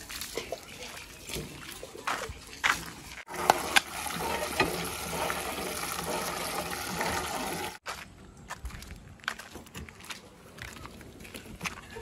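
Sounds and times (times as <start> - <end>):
water gushing into metal bucket: 0.0 - 7.8.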